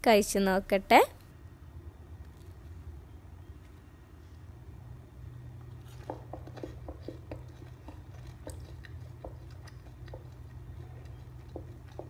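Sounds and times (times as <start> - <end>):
person chewing crunchy snack: 5.7 - 12.0.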